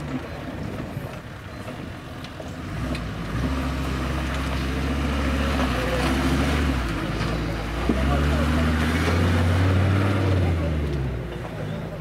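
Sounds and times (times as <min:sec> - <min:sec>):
off-road vehicle engine revving: 0:02.4 - 0:12.0.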